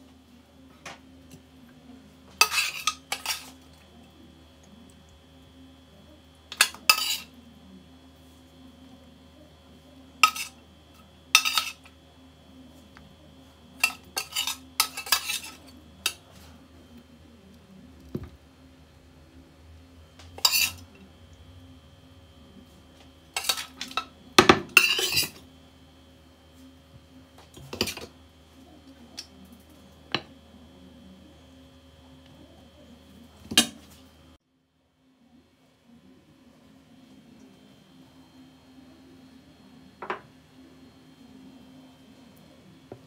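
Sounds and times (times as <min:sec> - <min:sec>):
metal spoon scraping pan and plate: 0:02.4 - 0:03.6, 0:06.5 - 0:07.4, 0:10.2 - 0:10.6, 0:11.4 - 0:11.9, 0:13.8 - 0:16.2, 0:20.4 - 0:20.9, 0:23.4 - 0:24.1, 0:24.7 - 0:25.4.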